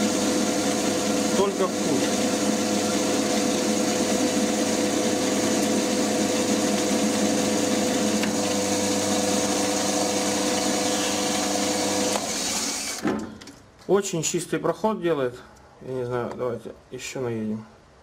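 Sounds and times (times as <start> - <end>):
cutter cutting metal: 0.0 - 13.0.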